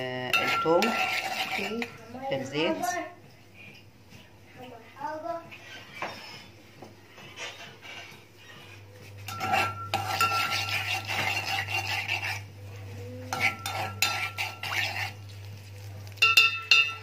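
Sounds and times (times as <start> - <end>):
steady low hum: 0.0 - 17.0
metal spoon scraping pot: 0.2 - 2.6, 7.2 - 12.5, 13.3 - 15.3, 16.2 - 17.0
garlic frying in oil: 13.3 - 17.0.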